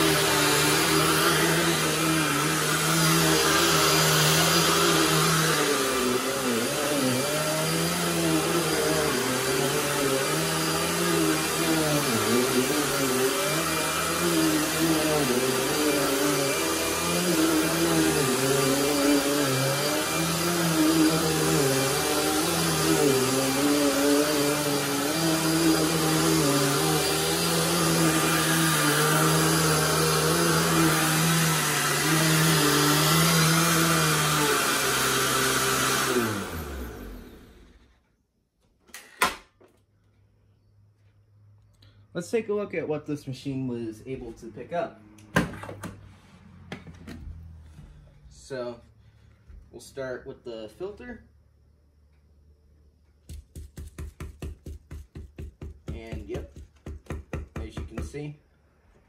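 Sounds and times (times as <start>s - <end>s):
vacuum cleaner on carpet: 0.0s - 37.8s.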